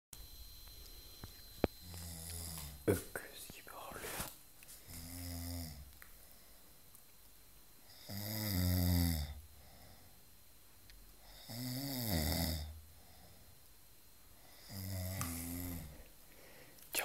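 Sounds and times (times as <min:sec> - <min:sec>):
man snoring: 0:01.8 - 0:02.8, 0:04.9 - 0:05.9, 0:07.9 - 0:10.0, 0:11.2 - 0:13.3, 0:14.5 - 0:15.9.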